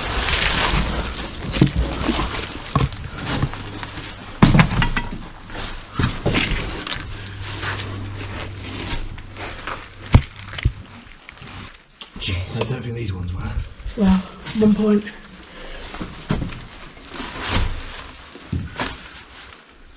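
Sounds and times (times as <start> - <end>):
footsteps crunching on dry leaves: 0.0 - 11.9
debris cracking underfoot: 0.0 - 12.1, 13.8 - 19.9.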